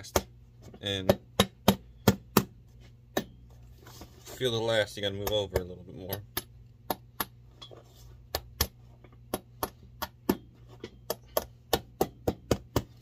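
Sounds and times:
low steady hum: 0:00.0 - 0:13.0
hammer tapping on nails: 0:08.3 - 0:13.0.

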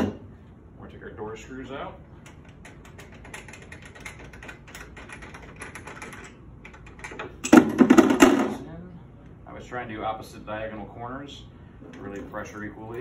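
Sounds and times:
plastic knobs clicking and rattling: 0:02.2 - 0:08.2.

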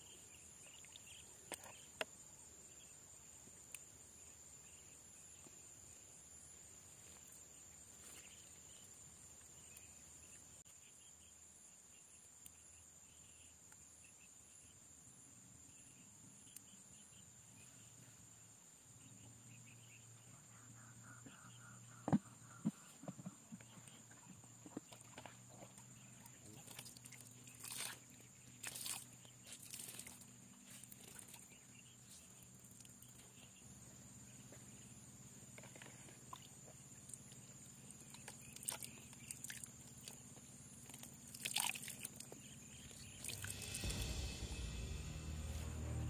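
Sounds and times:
insects trilling: 0:19.0 - 0:44.7
low hum: 0:42.4 - 0:46.0.

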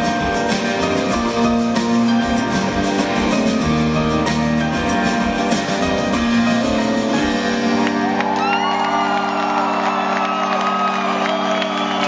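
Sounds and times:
guitars: 0:00.0 - 0:09.4
drums: 0:00.0 - 0:12.0
crowd whooping and shouting: 0:07.7 - 0:12.0.

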